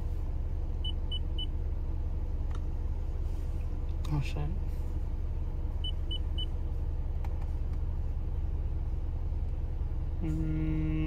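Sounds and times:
steady low rumble: 0.0 - 11.0
steady low tone: 7.8 - 11.0.

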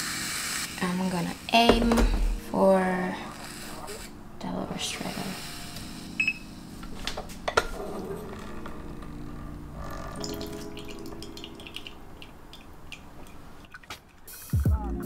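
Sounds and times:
water pouring: 9.8 - 14.4.

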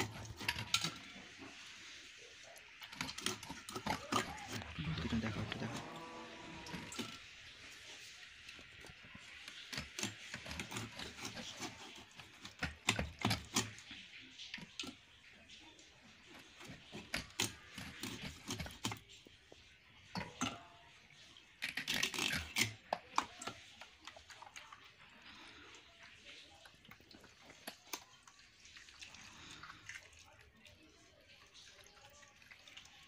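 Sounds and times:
knife scraping fish scales: 2.9 - 4.7, 9.4 - 13.9, 16.6 - 19.0, 21.6 - 22.9.

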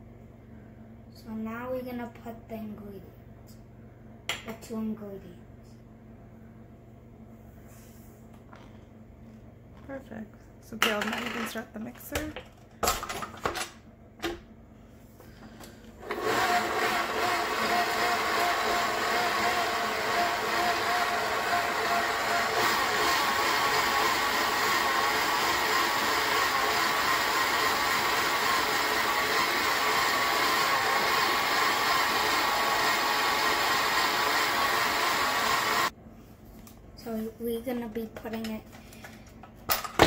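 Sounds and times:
electric stand mixer running: 16.0 - 35.9.

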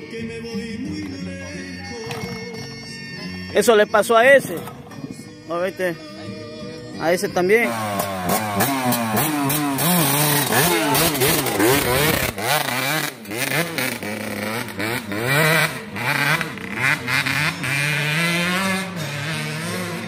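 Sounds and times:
dirt bike engine revving: 7.4 - 20.0.

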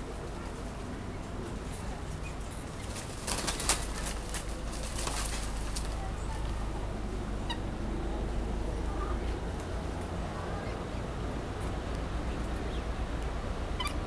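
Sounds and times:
leaves and branches rustling: 0.0 - 7.3
wings flapping: 2.7 - 6.2.

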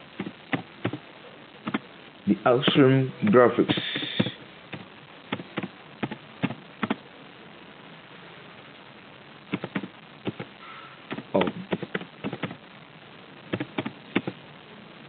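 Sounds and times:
computer keyboard typing: 3.7 - 7.0, 9.5 - 10.5, 11.1 - 12.6, 13.5 - 14.4.

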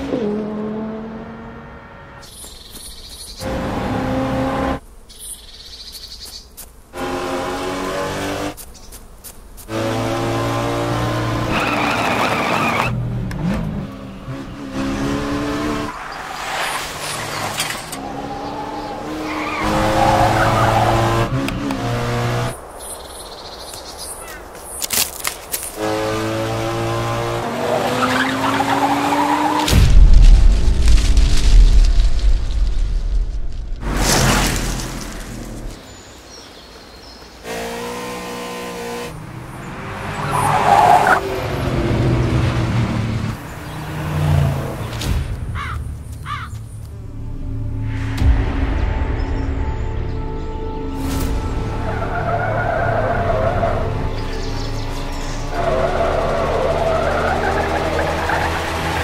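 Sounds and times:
car engine revving: 0.0 - 2.2, 3.4 - 4.9, 9.7 - 22.8, 25.7 - 29.9, 37.4 - 45.8, 51.5 - 59.0
tyres squealing and skidding: 11.4 - 13.0, 15.7 - 21.4, 27.4 - 29.7, 39.5 - 42.7, 51.5 - 59.0
car engine running hard: 52.3 - 59.0.

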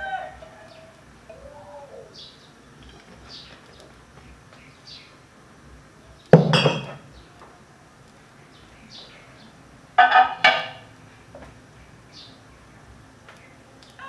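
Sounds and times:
faint bird chirps: 0.0 - 5.2
kitchenware clinking: 6.4 - 7.1.

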